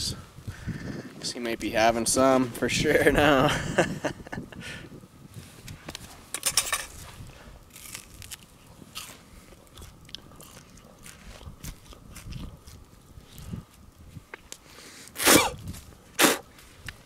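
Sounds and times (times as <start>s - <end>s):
crunching charred skin: 6.8s - 17.0s
biting and chewing sausage: 7.0s - 17.0s.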